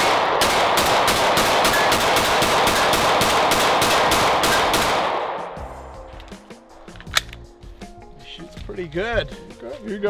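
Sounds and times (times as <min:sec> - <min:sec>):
rapid pistol shots: 0:00.0 - 0:05.5.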